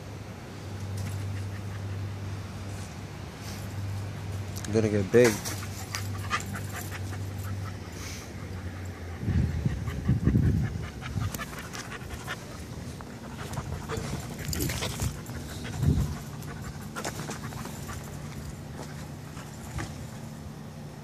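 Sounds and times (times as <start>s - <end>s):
dog panting rapidly: 5.5s - 19.7s.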